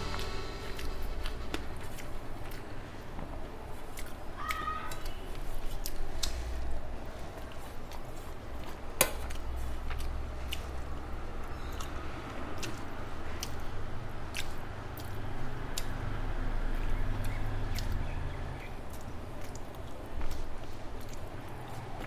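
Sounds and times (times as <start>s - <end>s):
low steady hum: 0.0s - 4.4s
person chewing: 3.7s - 4.2s, 7.2s - 10.9s, 12.6s - 13.7s, 14.3s - 15.2s, 18.9s - 22.0s.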